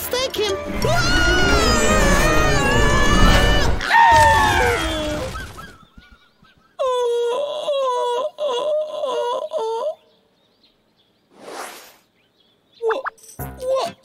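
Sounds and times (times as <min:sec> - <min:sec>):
pained wailing moans: 0:00.7 - 0:05.3
cartoon bear crying: 0:00.8 - 0:05.4, 0:06.8 - 0:10.0.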